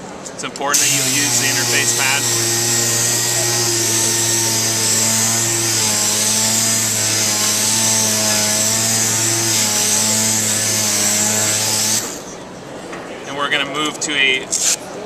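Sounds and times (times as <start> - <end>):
air sander whining: 0.7 - 12.4.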